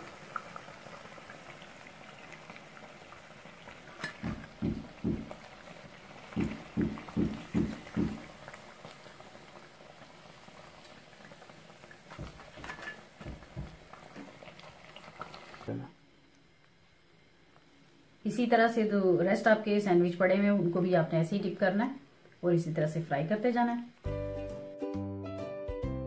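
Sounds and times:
food deep-frying in oil: 0.0 - 15.8
soft low thumps: 4.2 - 5.4, 6.4 - 8.3.

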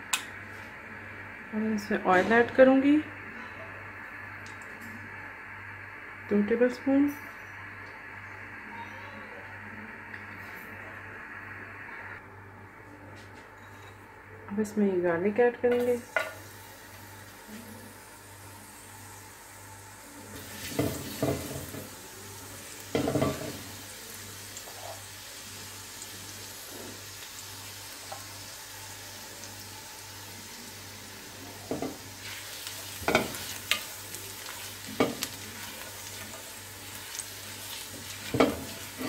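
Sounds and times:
garlic sizzling in hot oil: 15.8 - 39.0.

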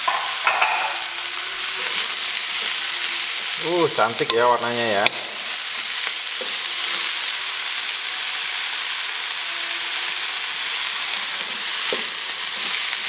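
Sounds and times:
vegetables sizzling in a wok: 0.0 - 13.0
wooden spatula turning food: 1.7 - 7.4, 11.3 - 13.0.

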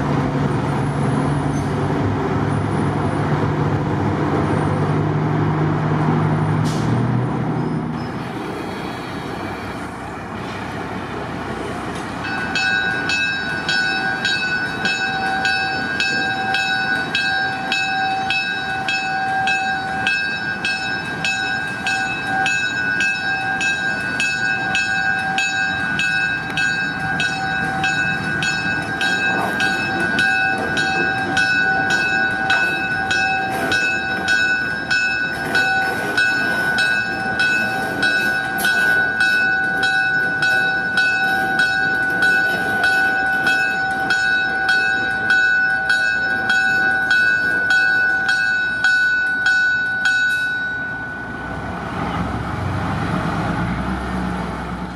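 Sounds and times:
moving train rumble: 0.0 - 54.9
locomotive bell ringing: 11.6 - 52.2.

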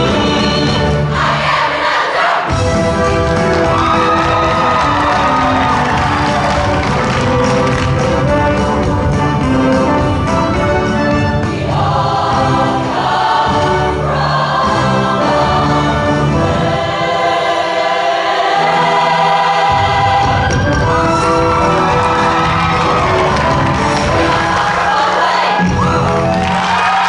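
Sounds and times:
women's choir singing in harmony: 0.0 - 2.7, 10.8 - 27.0
backing band: 0.0 - 27.0.

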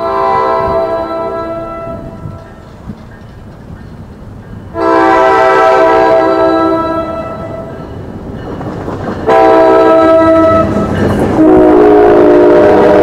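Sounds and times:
locomotive air horn blowing: 0.0 - 2.3, 4.8 - 7.7, 9.3 - 13.0
train rumbling: 0.0 - 13.0.

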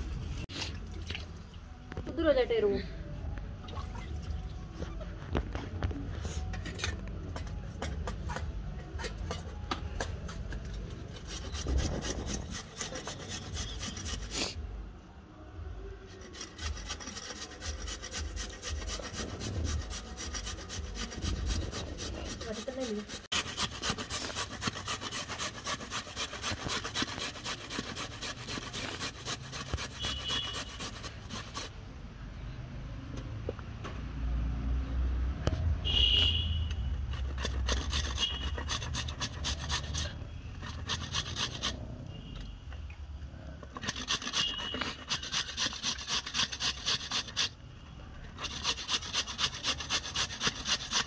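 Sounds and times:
carrots rasping on grater: 10.3 - 14.6, 16.1 - 31.7, 37.1 - 41.8, 43.7 - 47.6, 48.4 - 51.0.

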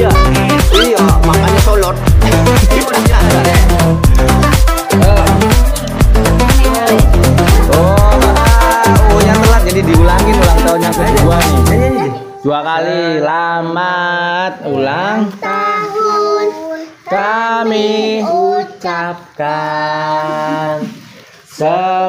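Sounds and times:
child singing: 0.0 - 1.1, 15.2 - 20.5.

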